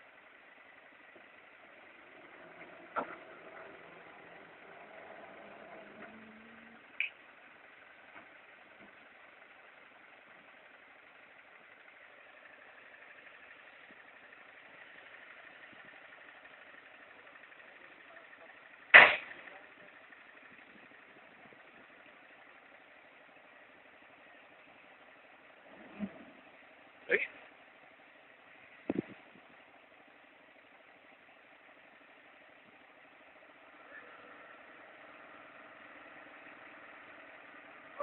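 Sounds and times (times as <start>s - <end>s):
truck engine humming: 0.0s - 38.0s
sharp bang: 19.0s - 19.4s.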